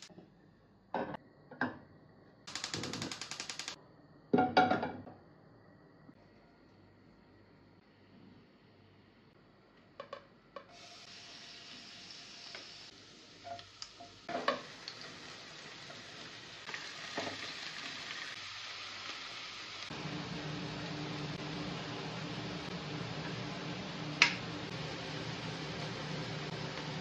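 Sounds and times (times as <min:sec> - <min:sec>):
sharp clicks: 0:02.5 - 0:03.8
oil sizzling in pans: 0:10.7 - 0:27.0.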